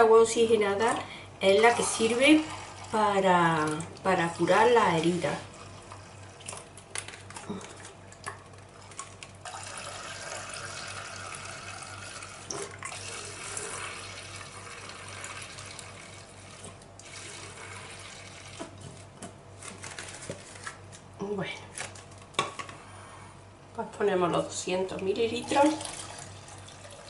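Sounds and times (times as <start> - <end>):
liquid pouring into jug: 1.7 - 19.1, 25.4 - 27.0.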